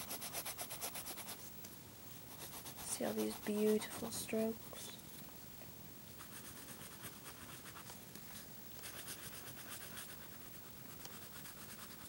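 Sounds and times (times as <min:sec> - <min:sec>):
colouring tool scratching on paper: 0:00.0 - 0:01.4, 0:02.3 - 0:04.2, 0:06.2 - 0:07.9, 0:08.8 - 0:12.0.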